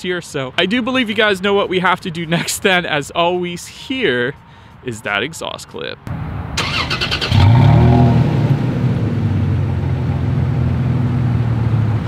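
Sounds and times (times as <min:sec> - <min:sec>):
car engine starting and idling: 0:06.1 - 0:12.0
engine starter cranking: 0:06.6 - 0:07.7.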